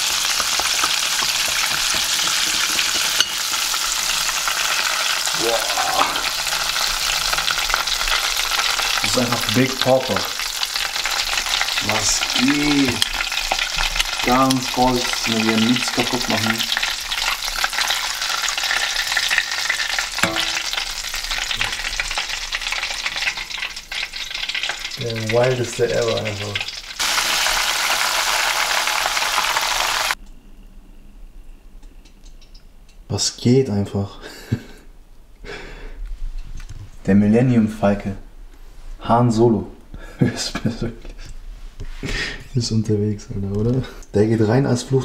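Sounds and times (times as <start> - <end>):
chicken deep-frying in oil: 0.0 - 30.2.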